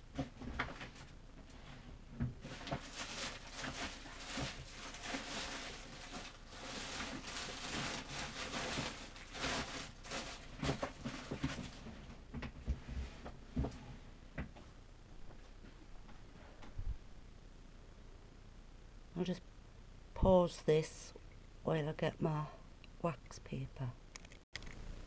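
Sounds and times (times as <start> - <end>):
materials rustling: 0.2 - 17.1.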